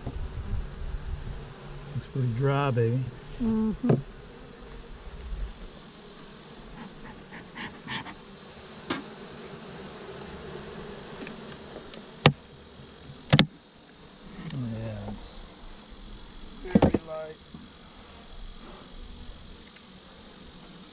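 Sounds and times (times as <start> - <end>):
bees buzzing: 0.0 - 20.9
wooden frames knocking: 16.7 - 17.1.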